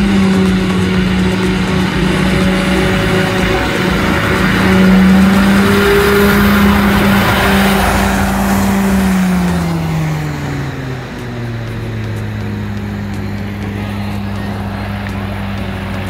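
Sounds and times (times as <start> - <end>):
vehicle motor humming: 0.0 - 16.0.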